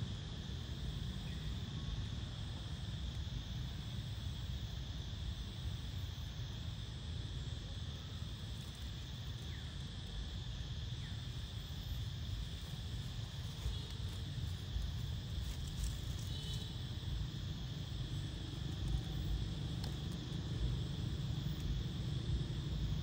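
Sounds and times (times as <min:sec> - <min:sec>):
high insect drone: 0:00.0 - 0:23.0
low wind-like rumble: 0:00.0 - 0:23.0.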